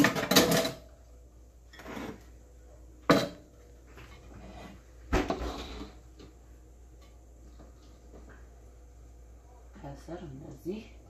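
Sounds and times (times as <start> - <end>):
metal cookware clattering: 0.0 - 1.0, 3.1 - 4.5.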